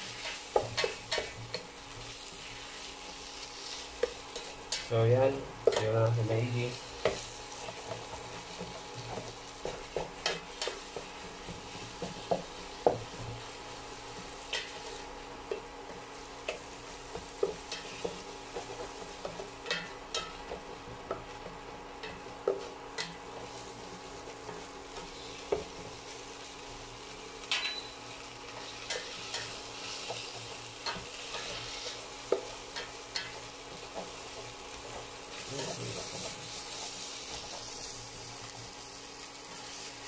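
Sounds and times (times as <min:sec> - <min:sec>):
meat sizzling in a pot: 0:00.0 - 0:40.0.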